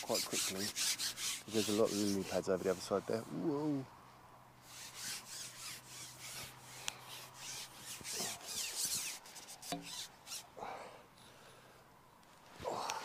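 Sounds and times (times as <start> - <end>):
fishing pole rubbing and scraping: 0.0 - 3.8, 4.6 - 10.5.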